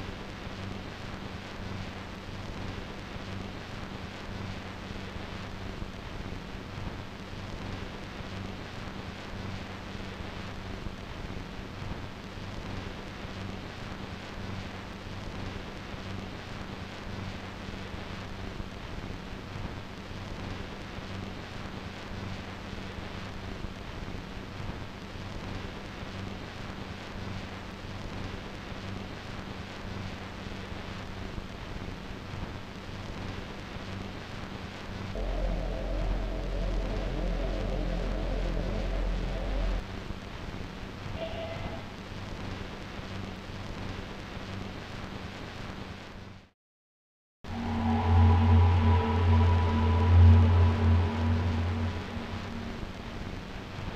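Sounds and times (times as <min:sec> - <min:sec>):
steady rushing noise: 0:35.2 - 0:39.8, 0:47.5 - 0:53.9
low hum: 0:35.2 - 0:40.1, 0:47.4 - 0:53.9.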